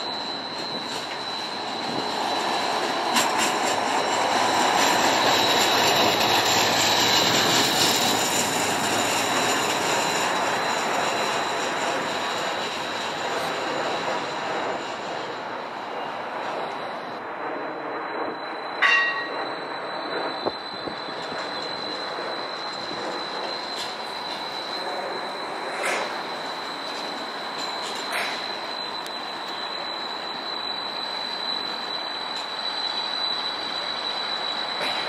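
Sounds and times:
streetcar rolling on rails: 0.0s - 35.0s
thin high steady tone: 0.0s - 35.0s
bell-like ding: 18.8s - 19.5s.

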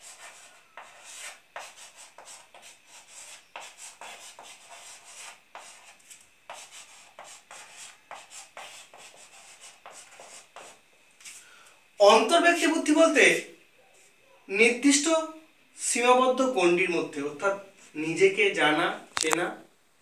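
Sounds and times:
chalk scratching on blackboard: 0.0s - 11.4s.

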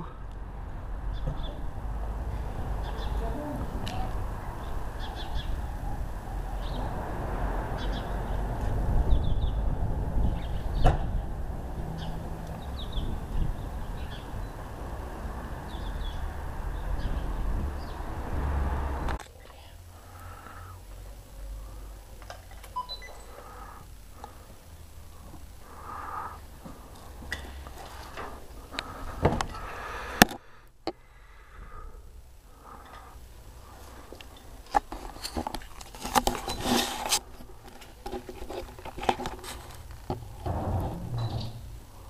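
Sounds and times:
camera handling clicks and rustles: 34.7s - 39.8s
low rumble: 39.8s - 42.0s.

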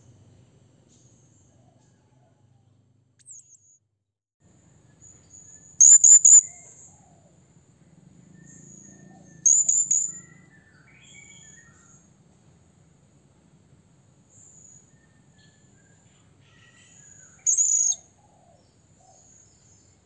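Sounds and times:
parrot shrill calls: 5.8s - 6.6s, 16.5s - 18.0s
faint thin parrot calls: 16.4s - 18.1s.

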